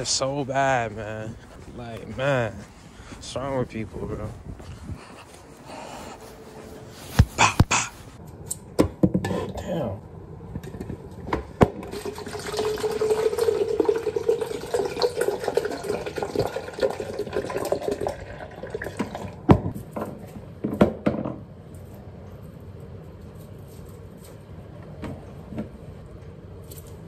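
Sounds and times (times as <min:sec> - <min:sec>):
juice pouring into a cup: 0:11.8 - 0:19.5.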